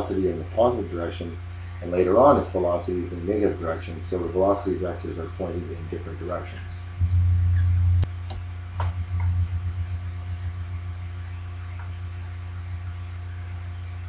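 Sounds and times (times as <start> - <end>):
electrical mains hum: 0.0 - 14.0.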